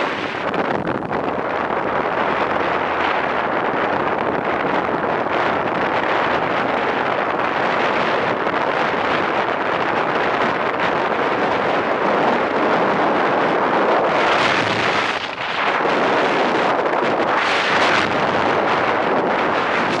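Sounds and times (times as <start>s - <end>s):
wheels rolling on dry lake bed: 0.0s - 20.0s
wind rushing over microphone: 0.0s - 20.0s.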